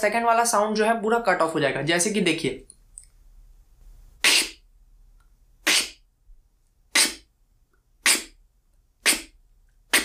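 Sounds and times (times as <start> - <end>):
beatboxed inward snares: 4.2 - 4.6, 5.6 - 6.0, 6.9 - 7.2, 8.0 - 8.3, 9.0 - 10.0.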